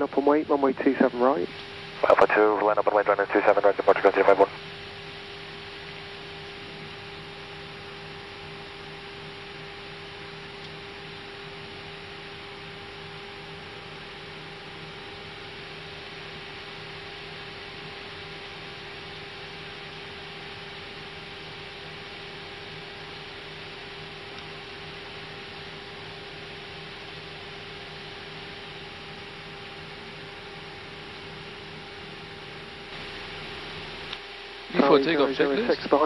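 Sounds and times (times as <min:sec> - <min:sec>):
aircraft cockpit hum and hiss: 0:00.0 - 0:36.0.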